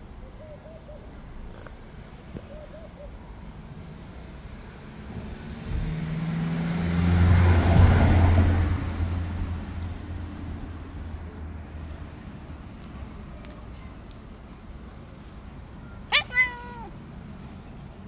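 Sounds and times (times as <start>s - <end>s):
car driving past: 3.9s - 11.5s.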